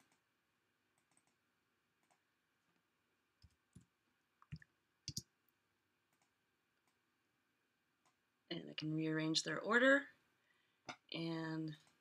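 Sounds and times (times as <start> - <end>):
keyboard keystrokes: 4.5 - 5.3.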